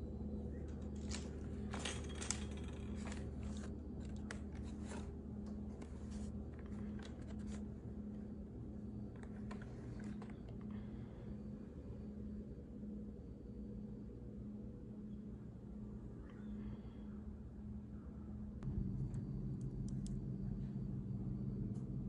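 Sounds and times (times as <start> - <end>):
low hum: 0.0 - 22.0
plastic strips crackling and rustling: 0.7 - 5.1.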